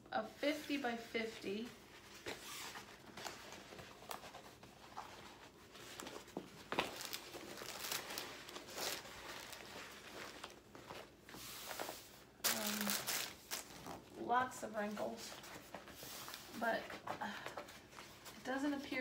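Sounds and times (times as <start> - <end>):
plastic film crinkling and rustling: 2.1 - 17.1.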